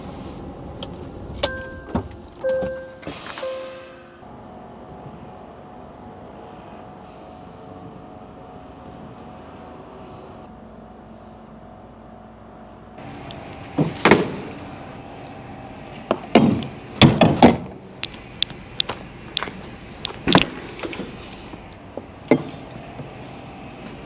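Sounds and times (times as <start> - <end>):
steady high whine: 0.5 - 24.0
metal doors clanking: 1.2 - 4.2.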